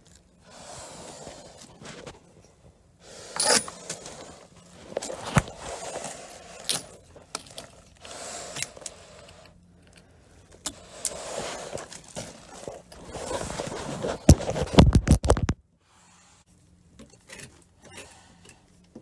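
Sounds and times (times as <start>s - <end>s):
hand tool scraping wood: 3.1s - 7.2s, 10.6s - 14.7s.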